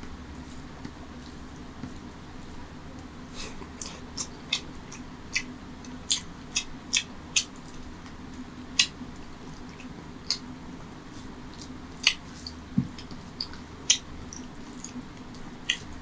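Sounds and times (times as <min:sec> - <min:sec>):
wet eating smacks and clicks: 0:03.5 - 0:10.5, 0:11.1 - 0:16.0.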